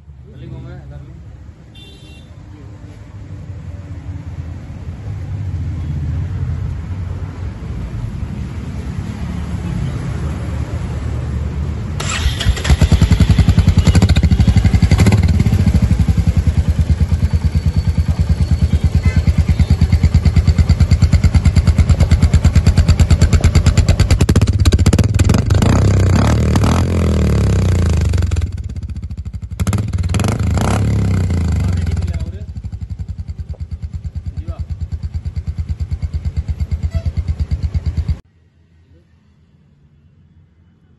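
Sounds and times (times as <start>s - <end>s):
motorcycle engine exhaust beat: 13.0s - 38.2s.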